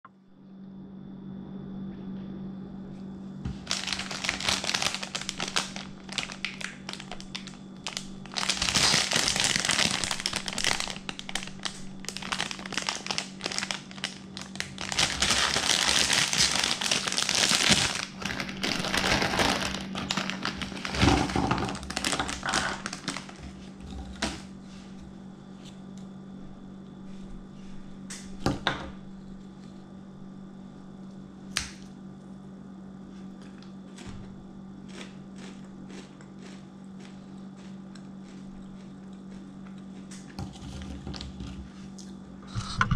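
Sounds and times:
steady low hum: 0.1s - 42.9s
plastic bag crinkling: 3.6s - 24.5s.

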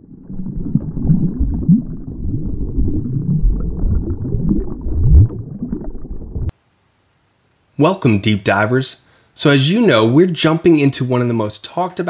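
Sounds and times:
deep rumbling bubbling drone: 0.0s - 6.5s.

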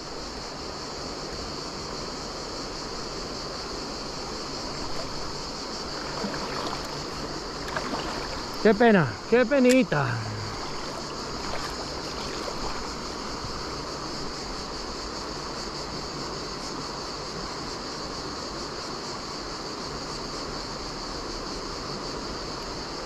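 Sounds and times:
river water rushing: 0.0s - 16.3s
high-pitched hiss: 0.0s - 23.0s.

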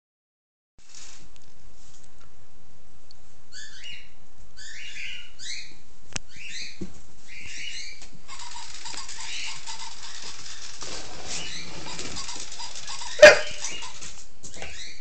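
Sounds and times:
toy robot dog yapping: 8.3s - 14.2s.

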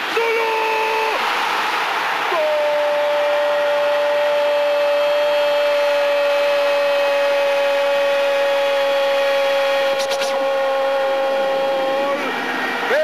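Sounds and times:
stadium crowd noise: 0.0s - 13.0s
commentator's long goal cry: 2.3s - 4.9s.

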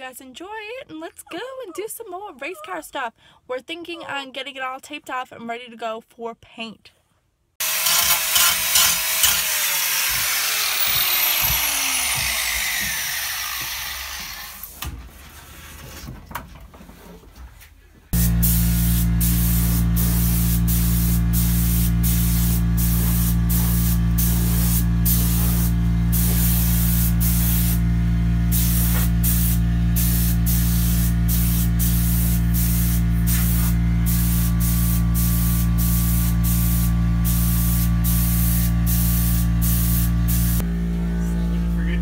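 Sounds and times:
paint sprayer hissing: 10.0s - 14.4s, 18.2s - 40.6s.

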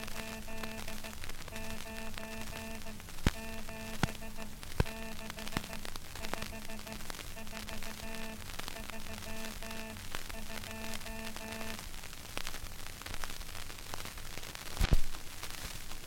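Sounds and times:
morse code tone: 0.0s - 11.8s
record crackle and hiss: 0.0s - 16.0s.

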